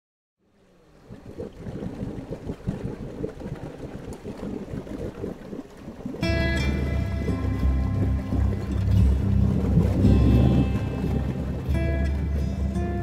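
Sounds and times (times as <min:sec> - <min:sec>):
water splashing against boat hull: 0:00.9 - 0:13.0
wind buffeting microphone: 0:01.1 - 0:13.0.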